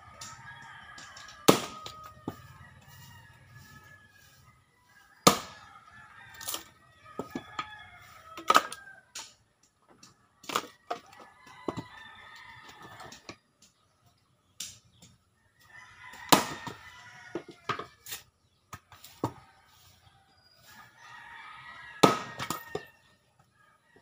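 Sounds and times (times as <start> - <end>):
axe chopping wood: 1.3 - 2.4, 5.2 - 5.6, 16.3 - 16.8, 22.0 - 22.9.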